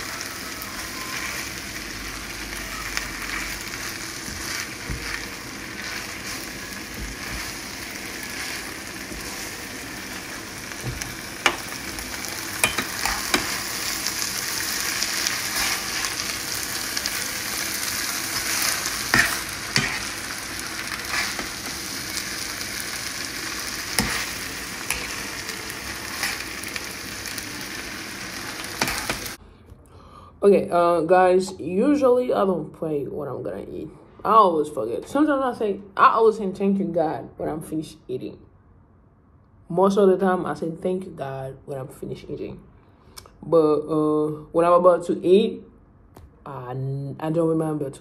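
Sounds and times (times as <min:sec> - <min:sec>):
food sizzling in a pan: 0:00.0 - 0:29.4
utensils scraping a pan: 0:18.5 - 0:20.2, 0:21.0 - 0:21.6, 0:24.0 - 0:25.2, 0:28.8 - 0:29.4.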